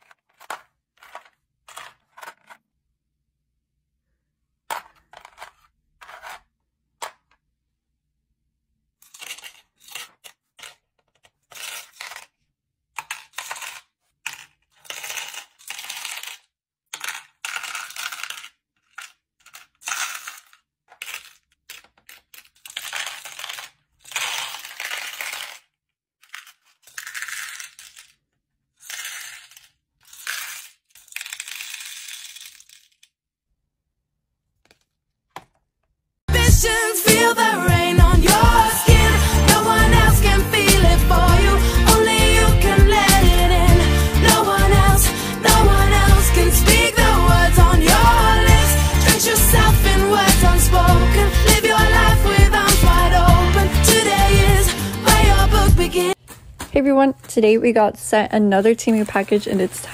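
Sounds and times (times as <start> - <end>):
beads clattering into plastic organizer: 0.0 - 2.6, 4.7 - 7.4.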